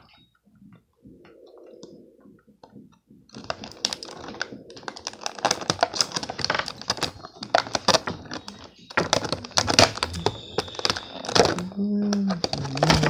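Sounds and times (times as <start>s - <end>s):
soft low hum: 0.0s - 13.0s
scissors snipping plastic: 3.4s - 13.0s.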